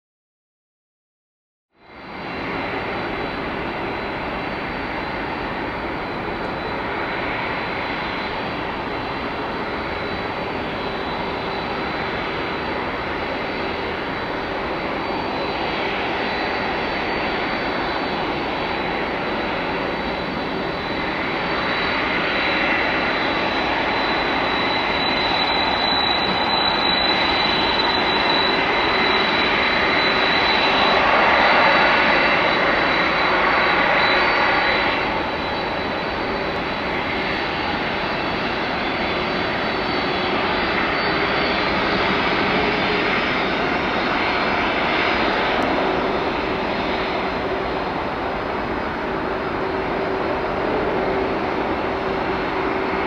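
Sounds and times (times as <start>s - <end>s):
jet engines running: 1.8s - 53.0s.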